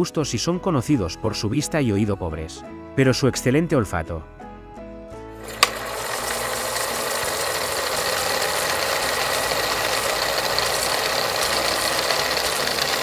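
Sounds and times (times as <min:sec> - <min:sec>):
rapid rattling ticking: 0:05.7 - 0:13.0.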